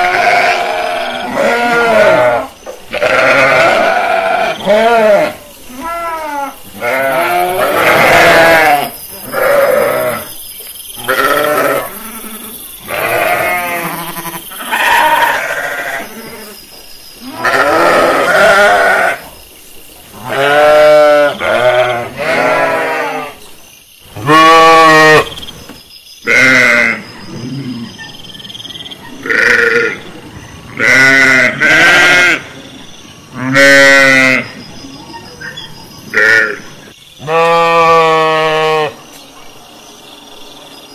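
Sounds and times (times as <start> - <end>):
sheep bleating: 0.0 - 10.2, 11.0 - 16.6, 17.2 - 19.2, 20.2 - 23.4, 24.2 - 25.2, 26.3 - 27.0, 29.2 - 30.0, 30.8 - 32.5, 33.4 - 34.5, 37.2 - 39.0.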